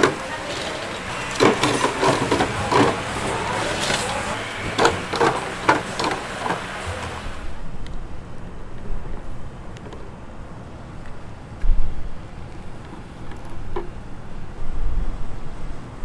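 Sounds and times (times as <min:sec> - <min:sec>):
cooking utensils knocking: 0:00.0 - 0:07.3
steady hiss: 0:00.0 - 0:16.0.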